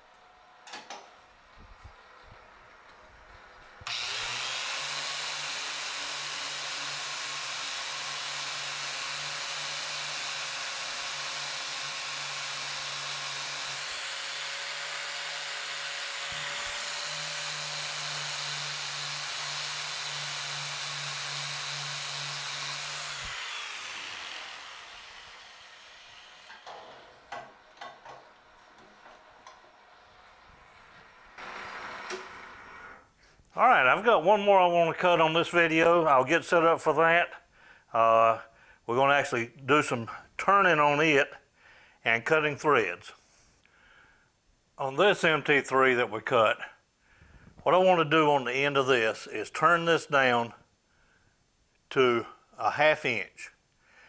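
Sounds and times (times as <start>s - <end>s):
metal lathe running: 3.9s - 26.9s.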